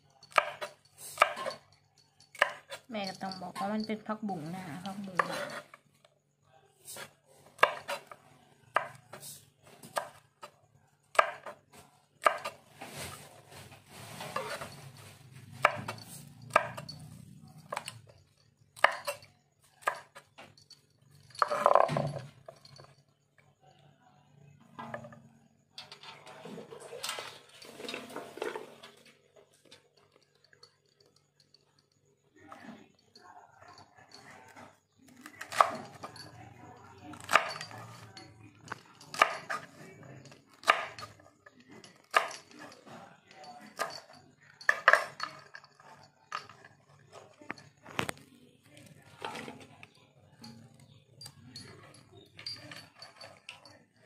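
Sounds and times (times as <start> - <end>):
utensils and dishes clattering: 12.2 - 23.1, 24.6 - 31.9, 33.7 - 48.2, 48.8 - 54.0.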